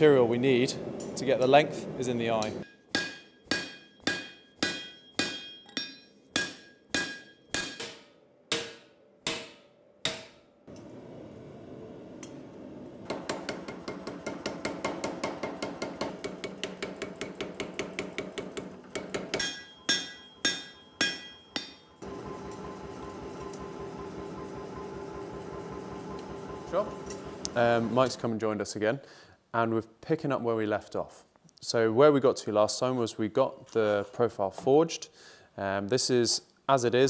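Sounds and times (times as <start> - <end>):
hammer ringing on anvil: 2.6 - 10.4, 13.7 - 22.0
duller rapid hammer strikes: 13.1 - 22.9.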